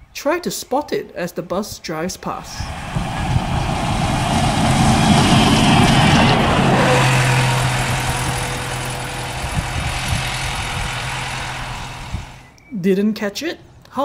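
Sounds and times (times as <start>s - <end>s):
bus driving past: 2.4s - 12.5s
steady low hum: 2.6s - 12.5s.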